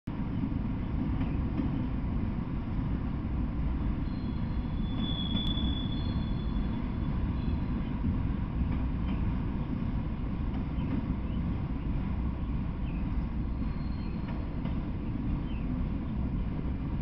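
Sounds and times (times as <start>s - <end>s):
train wheels rumbling on rails: 0.1s - 17.0s
high wheel squeal: 4.0s - 7.8s.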